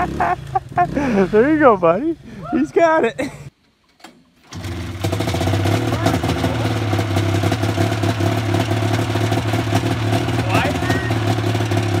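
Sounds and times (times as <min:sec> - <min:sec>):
utility vehicle engine running: 0:04.5 - 0:12.0.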